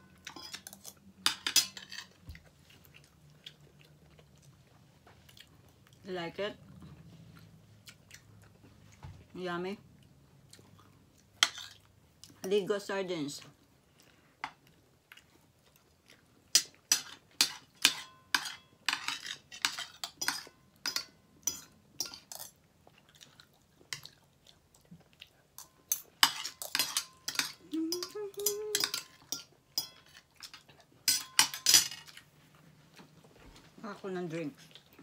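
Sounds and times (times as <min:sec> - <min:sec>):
cutlery clinking on a plate: 0:00.2 - 0:02.2, 0:16.6 - 0:22.6, 0:25.6 - 0:32.2.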